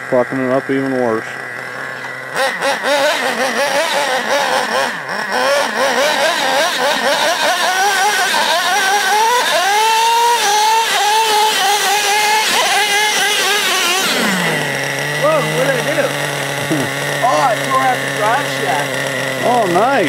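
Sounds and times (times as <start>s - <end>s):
small nitro engine revving: 0.0s - 20.0s.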